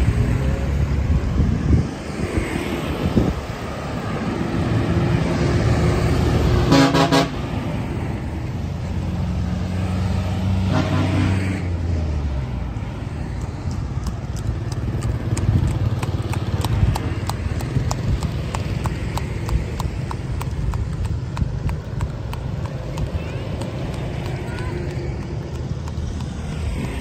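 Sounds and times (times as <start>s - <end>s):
motorbike and car engines passing: 0.0s - 27.0s
vehicle horn tooting: 6.7s - 7.4s, 10.7s - 11.4s
horse hooves on asphalt: 12.6s - 27.0s.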